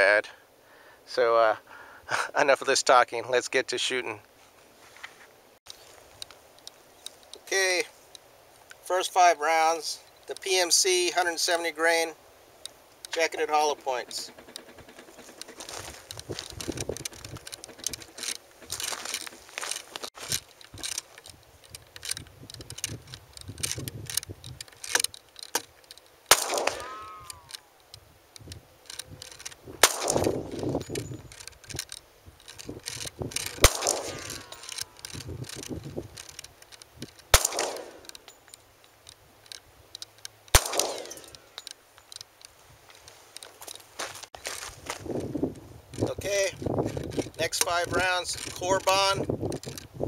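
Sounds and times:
small clicks and rustles: 4.2s - 8.8s, 12.6s - 50.0s
pistol shot ringing: 26.3s - 27.5s, 29.8s - 30.4s, 33.6s - 34.7s, 37.3s - 38.0s, 40.5s - 41.3s.

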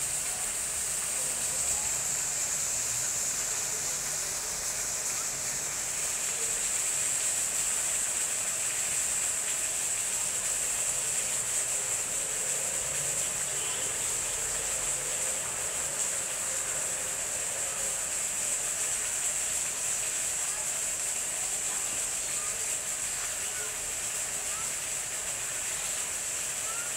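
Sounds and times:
high-pitched hiss: 0.0s - 26.9s.

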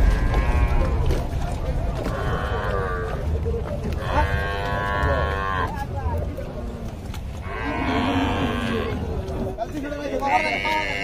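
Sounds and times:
steady low rumble: 0.0s - 7.4s
cattle mooing: 2.1s - 3.3s, 4.0s - 5.9s, 6.5s - 9.3s, 10.2s - 11.0s.

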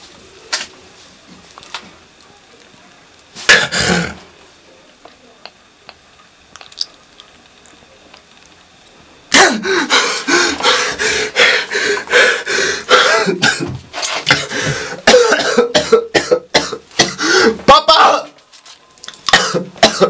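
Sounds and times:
man coughing and crying out: 3.5s - 4.2s, 9.3s - 9.9s, 12.9s - 13.8s, 15.0s - 18.3s, 19.3s - 20.0s.

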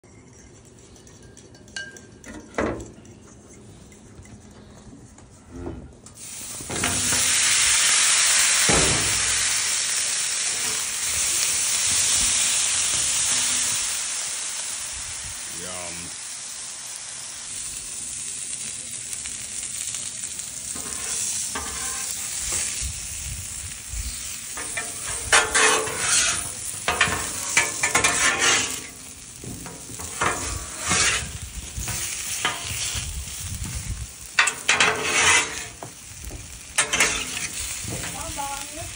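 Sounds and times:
potatoes sizzling on griddle: 6.0s - 38.9s
metal spatula scraping steel: 20.8s - 22.7s, 24.6s - 33.0s, 34.4s - 35.9s, 36.8s - 38.4s.

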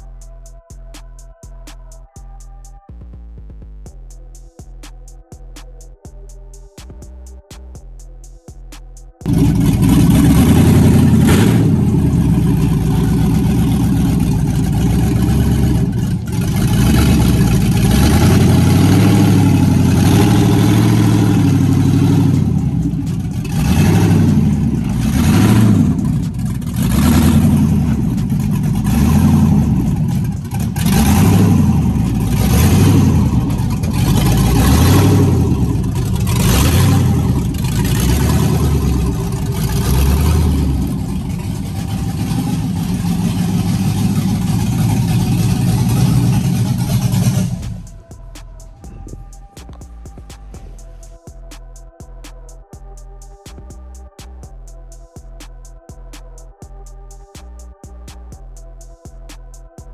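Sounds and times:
car engine revving: 9.2s - 51.1s.

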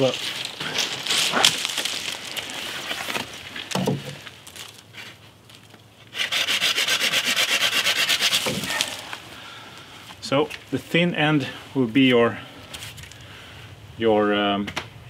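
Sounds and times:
hand saw cutting wood: 6.1s - 8.9s.

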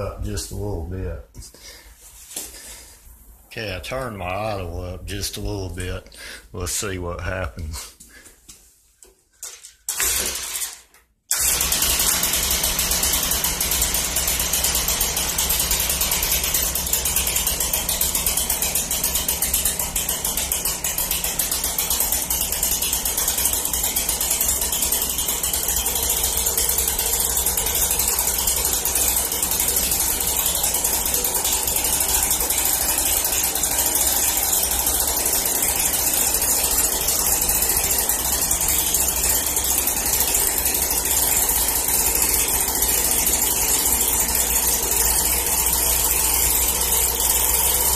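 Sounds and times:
leaf blower engine idling: 11.3s - 47.9s.

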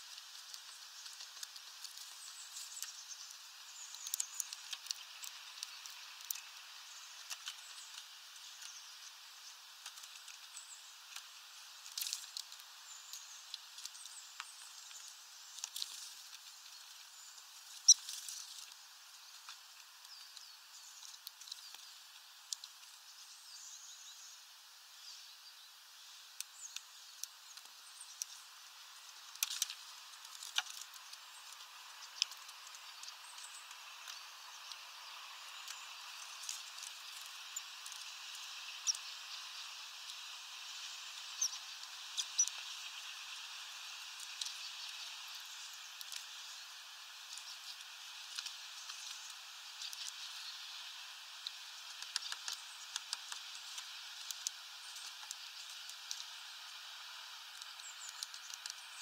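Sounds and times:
birds scrabbling on perches: 0.0s - 20.4s
faint hiss: 0.0s - 59.0s
birds pecking and tapping: 0.1s - 22.9s, 26.4s - 59.0s.

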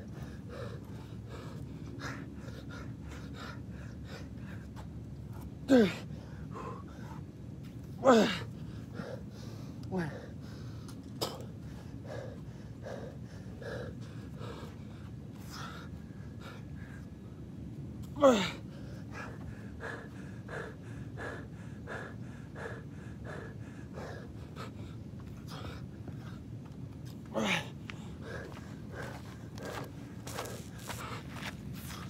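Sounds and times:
man breathing hard: 0.0s - 17.6s, 18.2s - 26.7s, 27.3s - 32.0s
man groaning: 5.7s - 6.1s, 8.0s - 8.5s, 18.2s - 18.6s, 27.3s - 27.7s.

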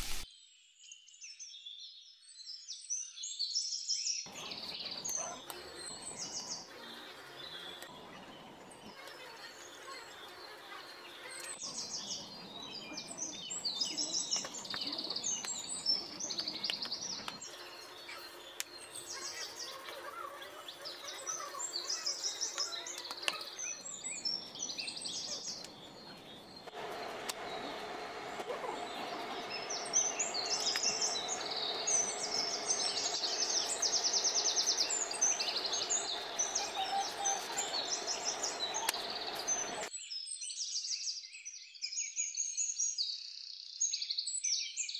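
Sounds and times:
birds chirping and trilling: 0.9s - 44.9s
steady hum: 25.6s - 39.9s.

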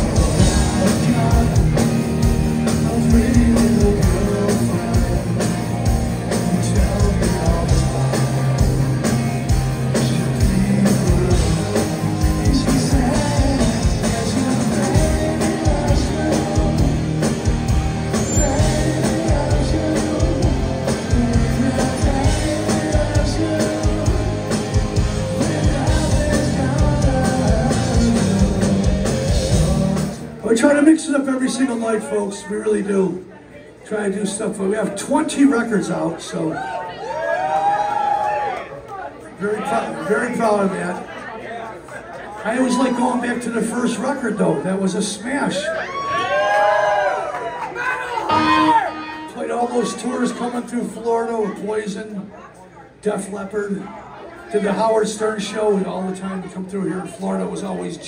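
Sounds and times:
male lead vocal: 0.0s - 9.0s, 9.8s - 17.5s, 18.2s - 30.4s
live rock band playing: 0.0s - 30.5s, 48.2s - 51.0s.

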